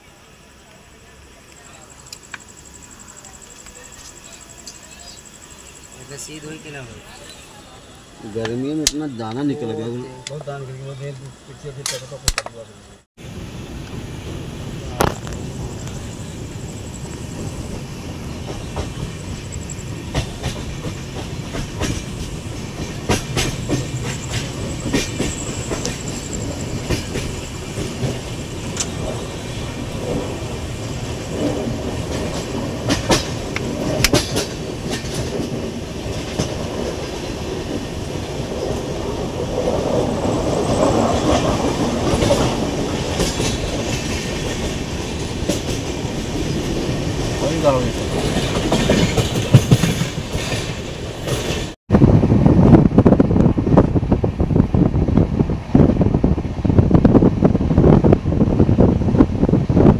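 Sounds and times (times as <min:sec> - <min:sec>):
train rumble: 0:00.0 - 0:59.9
wheels clacking over rail joints: 0:15.0 - 0:51.8.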